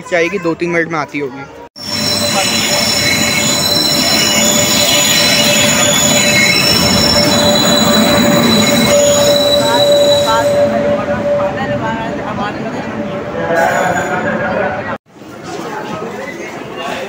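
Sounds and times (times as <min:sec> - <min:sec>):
wheel and brake squeal: 0:01.8 - 0:11.5
train rumbling past: 0:01.8 - 0:15.0.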